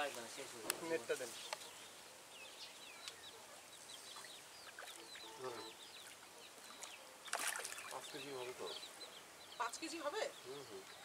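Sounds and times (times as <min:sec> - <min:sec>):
small birds chirping: 0:00.0 - 0:11.0
fish splashing in water: 0:04.2 - 0:05.3, 0:06.0 - 0:08.2.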